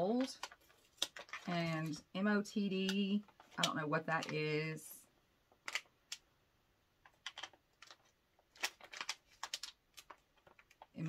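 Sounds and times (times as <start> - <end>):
packaging clicks and crinkles: 0.0 - 2.0, 2.7 - 4.4, 5.5 - 6.2, 7.0 - 11.0.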